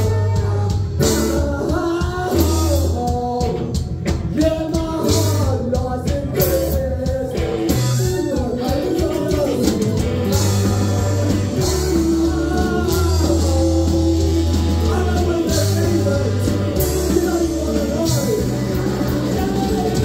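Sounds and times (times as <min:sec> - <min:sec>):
live rock band playing: 0:00.0 - 0:20.0
trombone: 0:08.7 - 0:20.0.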